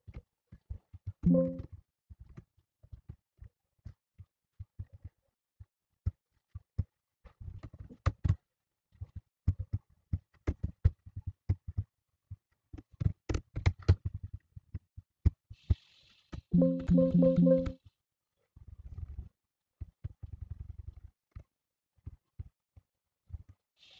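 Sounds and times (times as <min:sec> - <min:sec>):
mouse clicks: 0:16.6 - 0:17.7.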